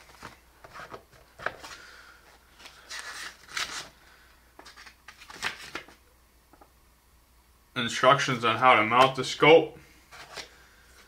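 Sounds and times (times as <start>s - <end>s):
paper rustling: 2.5s - 4.0s, 4.6s - 6.0s.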